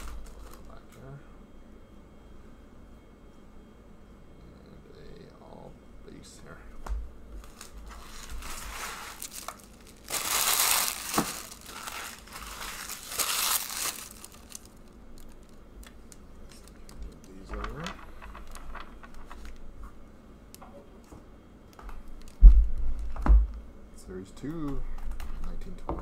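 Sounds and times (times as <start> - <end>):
cards rustling: 0.0 - 1.0, 7.4 - 19.6
plastic wrappers crumpling: 0.0 - 1.0, 7.4 - 19.6.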